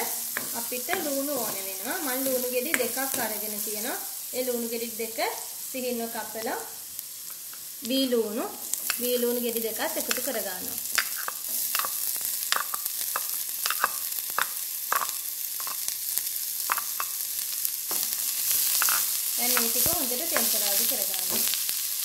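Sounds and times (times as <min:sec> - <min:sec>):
onions sizzling in oil: 0:00.0 - 0:22.0
spoon stirring in oil: 0:10.0 - 0:15.9, 0:16.7 - 0:17.2, 0:17.9 - 0:21.6.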